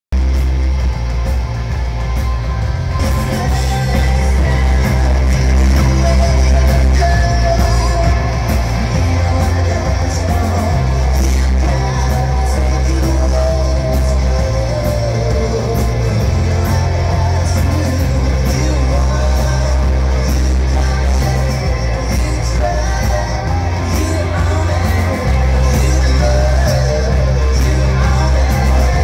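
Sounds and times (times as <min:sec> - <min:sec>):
rock band playing: 0:00.1 - 0:29.0
person singing: 0:01.8 - 0:29.0.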